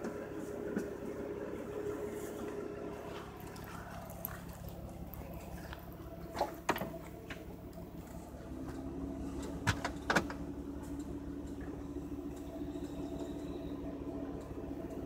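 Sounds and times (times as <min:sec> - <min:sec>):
low hum: 0:00.0 - 0:15.0
handling knocks and clunks in car trunk: 0:09.5 - 0:10.4.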